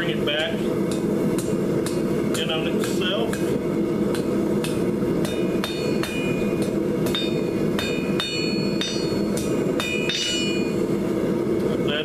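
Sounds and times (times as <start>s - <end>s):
steady low hum: 0.0s - 12.0s
hammer striking steel on anvil: 0.9s - 10.8s.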